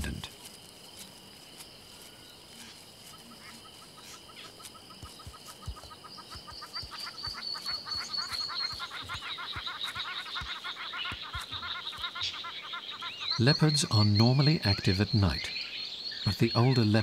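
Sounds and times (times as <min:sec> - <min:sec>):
birds chirping: 0:00.0 - 0:17.0
insects buzzing high tones: 0:00.0 - 0:17.0
bird high rapid trill: 0:02.6 - 0:14.8.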